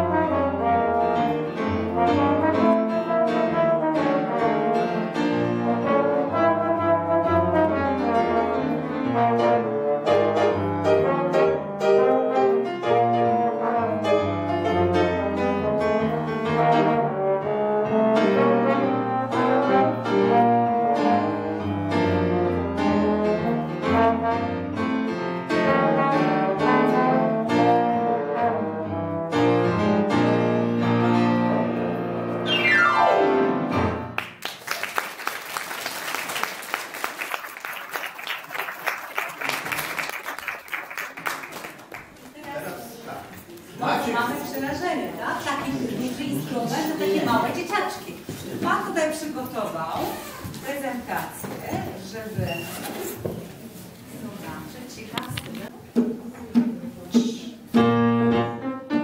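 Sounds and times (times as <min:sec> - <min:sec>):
trombones and piano playing: 0:00.0 - 0:34.3, 0:57.6 - 0:59.0.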